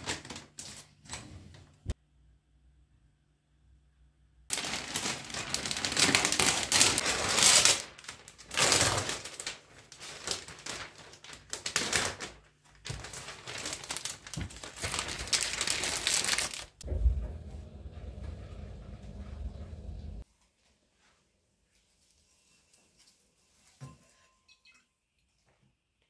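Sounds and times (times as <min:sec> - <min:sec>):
plastic sleeve crinkling: 0:00.0 - 0:01.0, 0:04.5 - 0:16.8.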